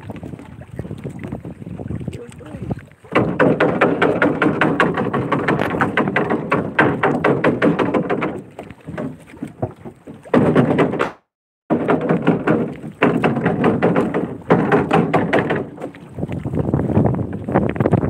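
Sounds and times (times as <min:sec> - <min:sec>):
net rustling and knocking on hull: 0:03.1 - 0:18.0.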